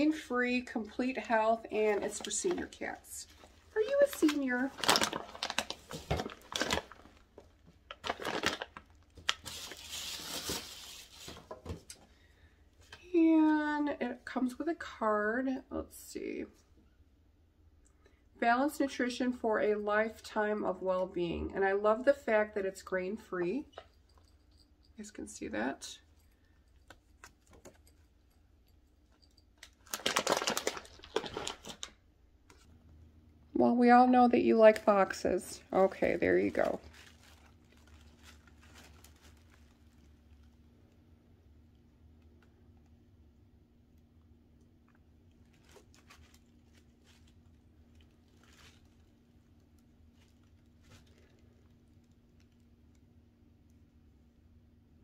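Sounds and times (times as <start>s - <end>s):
plastic bag crinkling: 1.6s - 11.8s, 29.2s - 32.0s, 35.6s - 40.6s, 45.3s - 52.7s.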